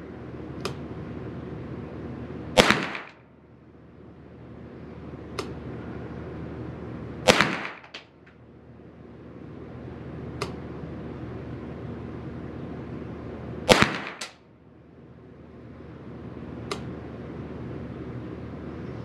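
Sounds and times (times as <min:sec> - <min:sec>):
rifle shot with echo: 0:02.6 - 0:03.2, 0:07.2 - 0:08.0, 0:13.7 - 0:14.4
faint sharp cracks: 0:07.3 - 0:08.4, 0:13.7 - 0:14.4.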